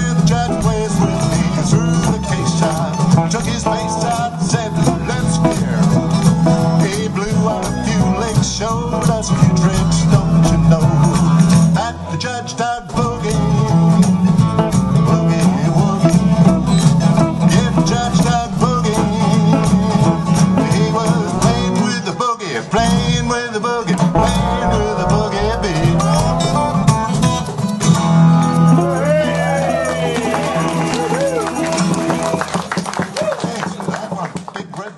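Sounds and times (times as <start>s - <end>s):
strummed acoustic guitars: 0.0s - 32.8s
hand percussion: 23.9s - 34.5s.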